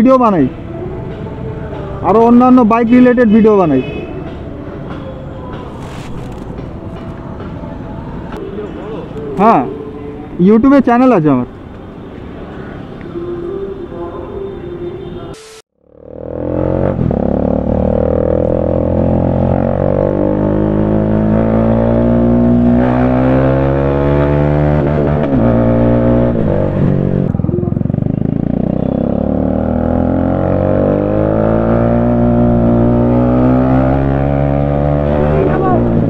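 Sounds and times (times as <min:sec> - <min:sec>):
motorcycle engine and exhaust: 0:15.8 - 0:36.0.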